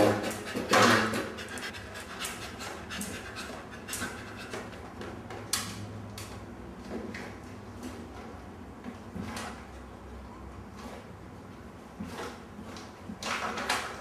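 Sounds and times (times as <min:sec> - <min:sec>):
dog panting: 0:00.0 - 0:04.8.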